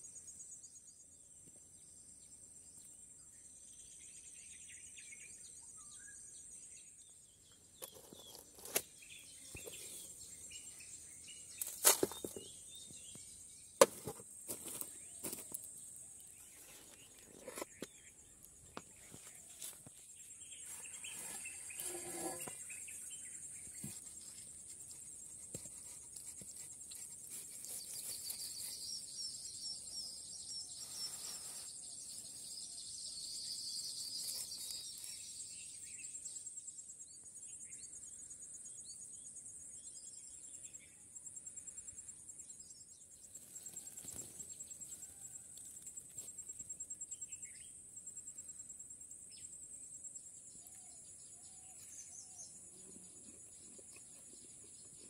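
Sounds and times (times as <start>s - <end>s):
insects chirping: 0.0s - 55.0s
low insect buzz: 18.7s - 27.3s.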